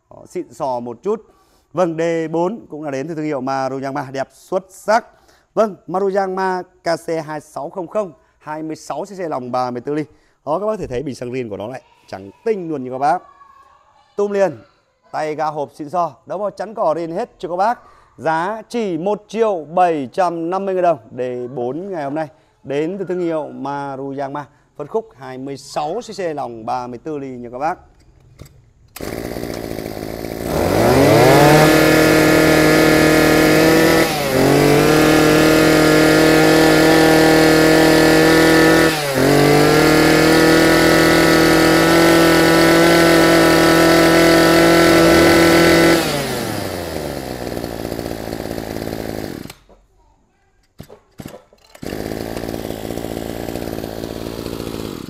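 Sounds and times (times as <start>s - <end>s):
brush-cutter engine revving: 28.9s - 49.7s, 51.2s - 55.0s.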